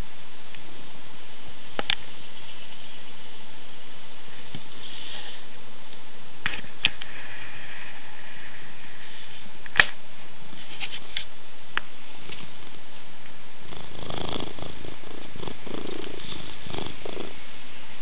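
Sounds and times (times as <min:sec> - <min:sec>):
cat purring: 0:12.0 - 0:18.0.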